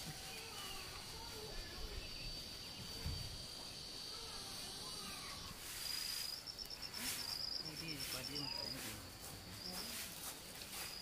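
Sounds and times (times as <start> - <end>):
insects buzzing: 0.0 - 11.0
insect pulsing trill: 1.8 - 10.0.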